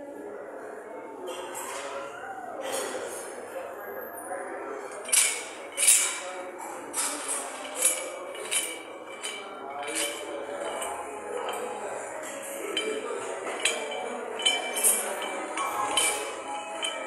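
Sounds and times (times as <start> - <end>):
background murmur: 0.0 - 17.0
metal weights clanking: 4.9 - 17.0.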